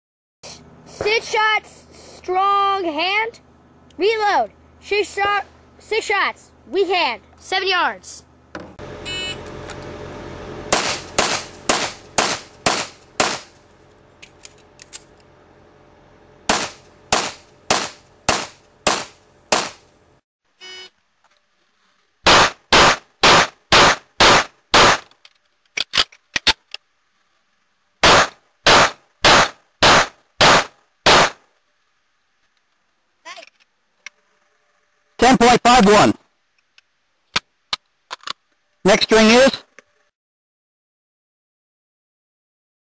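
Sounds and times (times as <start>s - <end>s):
pistol shots: 10.7s - 13.5s, 16.5s - 19.8s, 22.3s - 25.1s, 28.0s - 31.4s.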